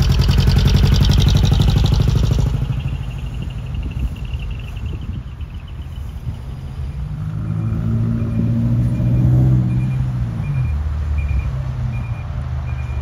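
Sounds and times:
diesel truck engine running: 0:00.0 - 0:13.0
high warning beeps: 0:02.4 - 0:06.5, 0:07.4 - 0:13.0.

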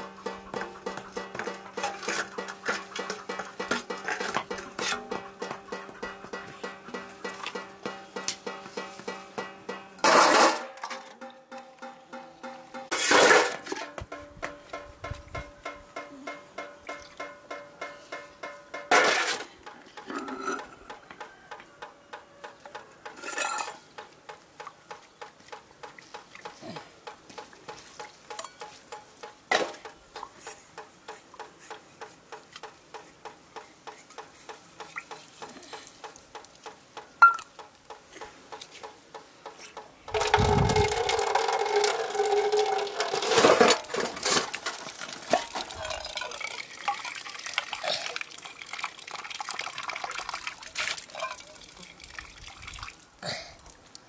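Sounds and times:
metal utensil stirring in pot: 0:40.1 - 0:47.2
food sizzling: 0:40.1 - 0:49.8.

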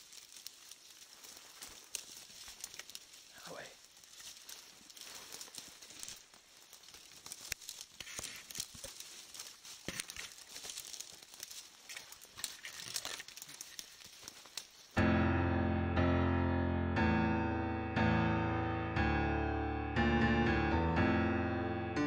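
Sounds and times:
dry grass rustling and crackling: 0:00.0 - 0:15.2
electric piano: 0:15.0 - 0:22.0.

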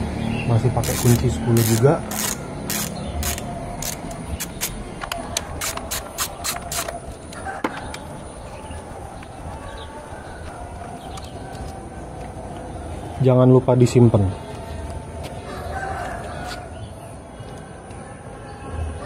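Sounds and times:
ratchet wrench clicking: 0:00.8 - 0:04.8, 0:05.4 - 0:06.9.

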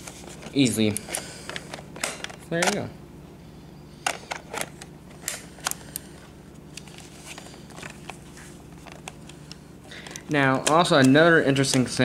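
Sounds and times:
steady low hum: 0:00.0 - 0:12.0
plastic handling clicks and knocks: 0:01.5 - 0:02.8.

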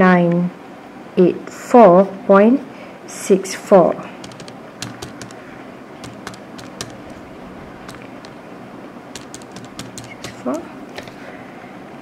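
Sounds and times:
calculator key clicks: 0:04.2 - 0:05.4, 0:06.0 - 0:08.4, 0:09.2 - 0:10.6.

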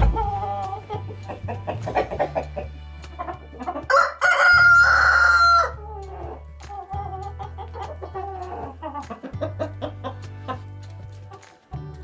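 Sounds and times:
chickens clucking: 0:00.0 - 0:12.0
rooster crowing: 0:03.9 - 0:05.8.

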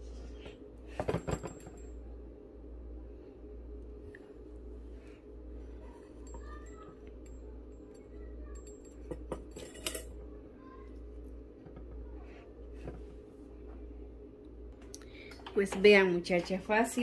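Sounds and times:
steady low hum: 0:00.0 - 0:17.0
metal lamp parts clicking: 0:08.6 - 0:10.1.

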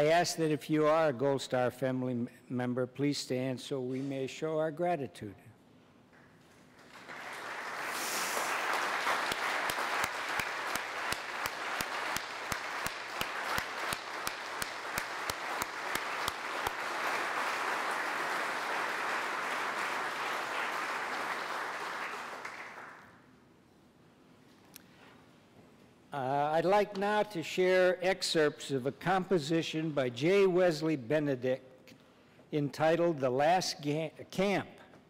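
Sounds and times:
close person clapping: 0:06.1 - 0:23.2
audience applauding: 0:06.8 - 0:23.2.

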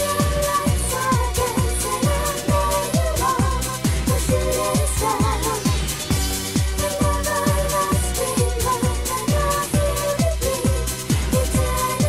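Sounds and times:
kick drum: 0:00.2 - 0:11.8.

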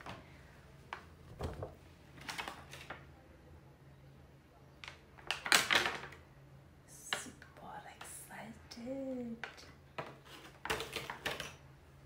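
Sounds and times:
plastic packaging rustling and clicking: 0:02.2 - 0:03.0, 0:04.8 - 0:06.2, 0:09.4 - 0:11.6.

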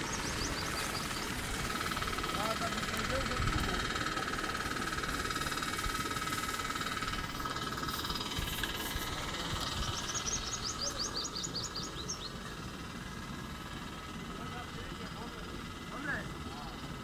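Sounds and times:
bird trilling chirps: 0:00.0 - 0:01.8, 0:09.6 - 0:12.4
low irregular rumble: 0:00.0 - 0:17.0
steady high whine: 0:00.0 - 0:17.0.

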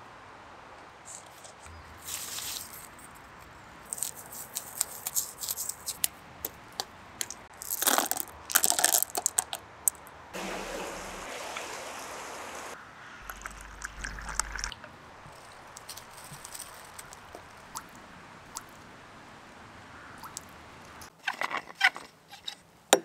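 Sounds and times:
charcoal lumps clicking and crunching: 0:03.9 - 0:10.0
small drips: 0:07.2 - 0:18.9, 0:20.2 - 0:21.1
pebbles clattering into plastic bottle: 0:07.6 - 0:09.6
pouring: 0:07.6 - 0:09.6, 0:10.4 - 0:17.9.

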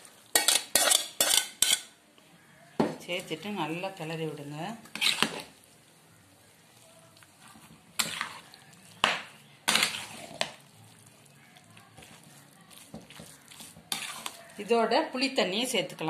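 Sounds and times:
spoon scraping in pot: 0:00.3 - 0:01.9, 0:04.8 - 0:05.5, 0:07.4 - 0:14.8
spoon clinking against pot: 0:00.4 - 0:01.9.

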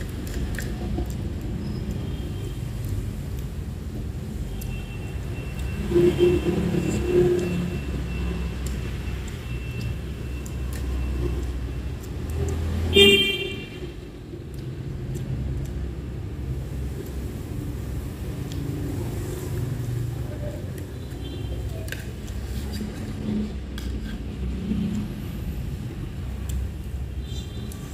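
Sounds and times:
street traffic rumble: 0:00.0 - 0:27.9
vehicle horn beep: 0:05.7 - 0:07.7, 0:12.9 - 0:13.8.

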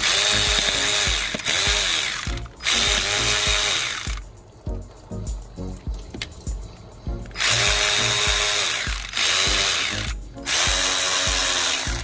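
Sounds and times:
electric ratchet motor whining: 0:00.0 - 0:04.4, 0:07.2 - 0:12.0.

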